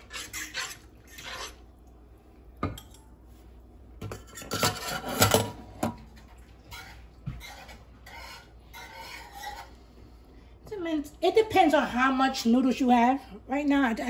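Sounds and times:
metal cookware clanking: 4.0s - 6.0s.

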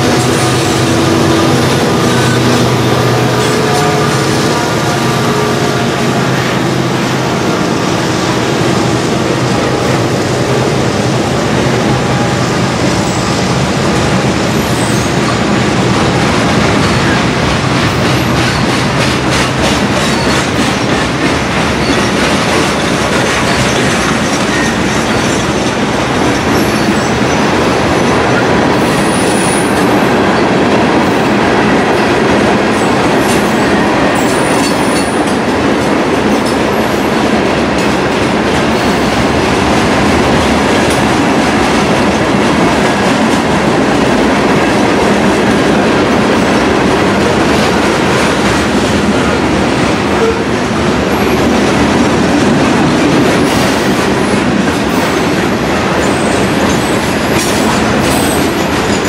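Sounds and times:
train wheels rumbling on rail: 0.0s - 59.0s
clickety-clack over rail joints: 13.8s - 59.0s.

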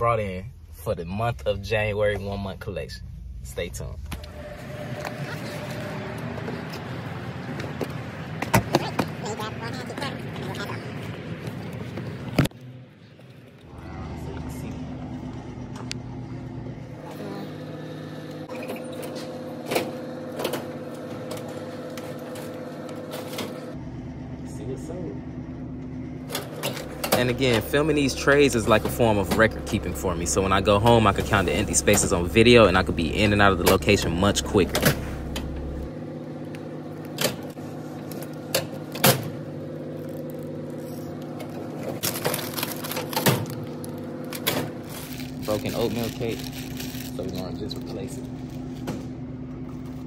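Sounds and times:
vending machine hum: 0.0s - 50.0s
snack packets crinkling: 42.0s - 48.8s.

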